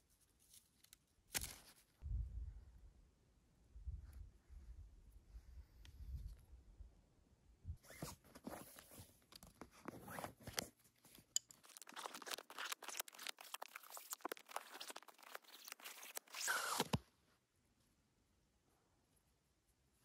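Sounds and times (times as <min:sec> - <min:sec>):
lace zipping pull: 0:07.8 - 0:08.6, 0:11.6 - 0:17.0
bootlace scratching through eyelets: 0:11.6 - 0:17.0.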